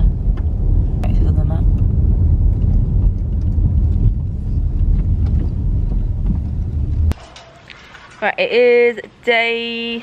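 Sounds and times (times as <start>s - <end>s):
car road noise rumble: 0.0s - 7.2s.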